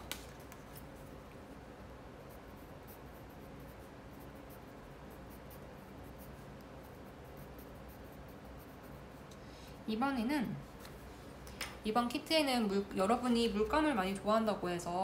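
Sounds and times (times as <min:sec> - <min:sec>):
faint steady hum: 0:00.0 - 0:15.0
colored pencil scratching on paper: 0:02.1 - 0:10.2.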